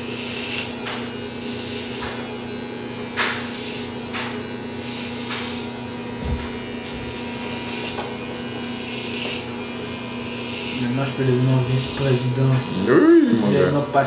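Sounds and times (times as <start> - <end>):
electric hair clippers humming: 0.0 - 14.0
clipper blades swishing through hair: 5.0 - 5.7.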